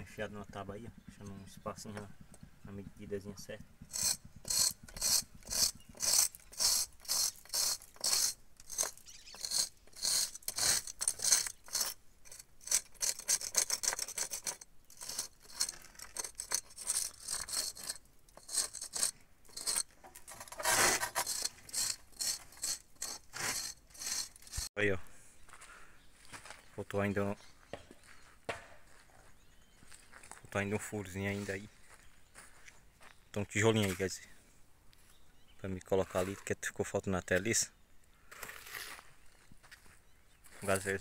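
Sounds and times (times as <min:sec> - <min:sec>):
nail scraping mortar joints: 0:03.8 - 0:24.7.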